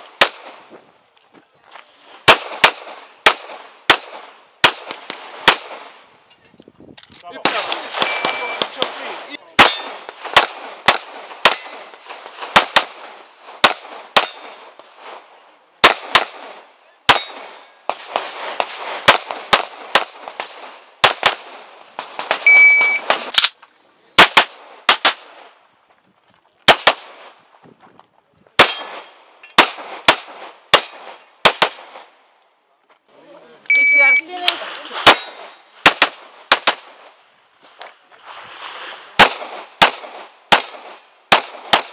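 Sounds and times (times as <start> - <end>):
pistol shots with echo: 2.2 - 6.0, 7.4 - 14.8, 15.8 - 23.6, 24.2 - 25.5, 26.7 - 27.4, 28.6 - 32.2, 35.0 - 37.2, 39.2 - 41.9
shot timer beeps: 8.0 - 8.7, 22.5 - 23.1, 33.7 - 34.3.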